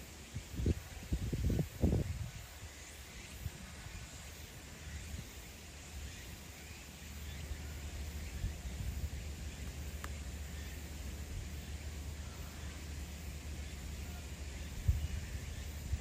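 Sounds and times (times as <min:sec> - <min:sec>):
faint background hiss: 0:00.0 - 0:16.0
wind rumble on microphone: 0:00.2 - 0:05.4, 0:07.5 - 0:10.3, 0:14.0 - 0:16.0
faint chirp-like tick: 0:06.1 - 0:11.3.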